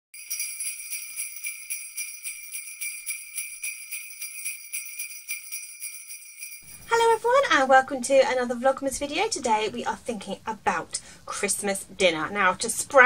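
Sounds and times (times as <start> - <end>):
sleigh bells jingling: 0.2 - 7.3.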